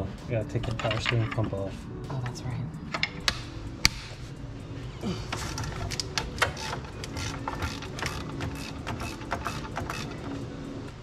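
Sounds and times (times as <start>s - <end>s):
hand tools clicking on metal: 5.3s - 10.4s.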